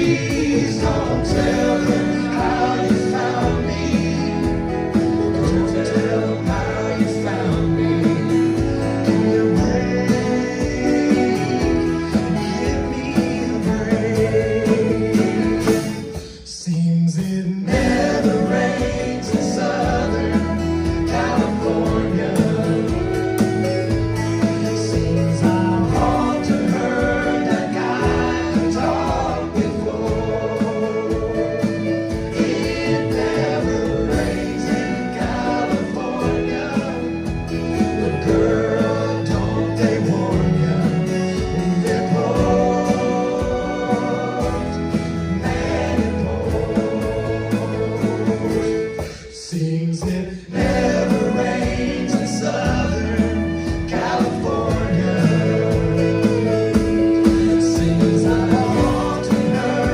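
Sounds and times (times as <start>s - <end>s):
man singing: 0.0s - 59.9s
soft rock band playing: 0.0s - 59.9s.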